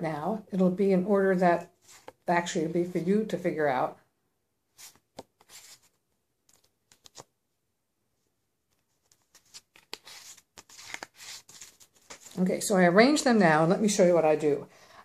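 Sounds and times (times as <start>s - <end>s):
playing cards snapping and rustling: 6.5s - 7.3s, 9.0s - 12.4s.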